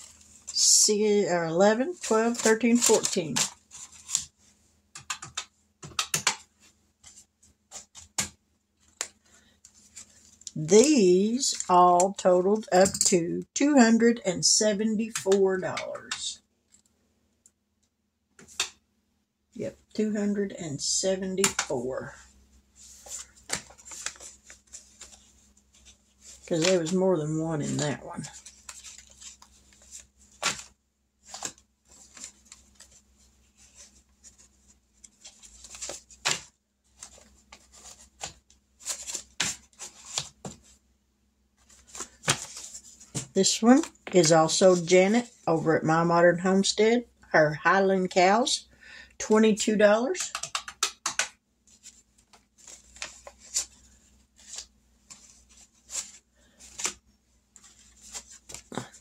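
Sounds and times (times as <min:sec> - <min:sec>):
paper envelopes rustling: 0:01.5 - 0:04.6, 0:22.8 - 0:27.0, 0:27.6 - 0:40.8, 0:41.6 - 0:45.3, 0:51.7 - 0:59.0.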